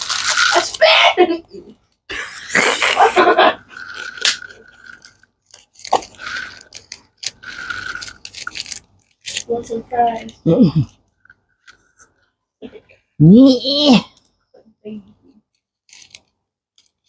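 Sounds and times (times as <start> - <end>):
plastic wrapper crinkling: 0.0 - 1.0, 3.8 - 9.8, 15.6 - 17.0.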